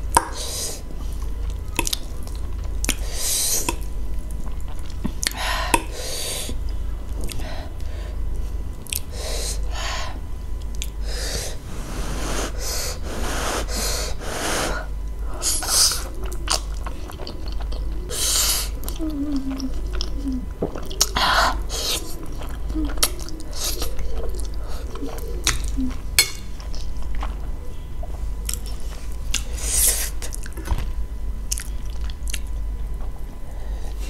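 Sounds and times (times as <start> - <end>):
low hum: 3.7 - 29.6
sharp intakes of breath: 11.0 - 14.9
chewing: 16.0 - 18.1, 18.7 - 21.2, 21.8 - 29.5, 31.5 - 32.6.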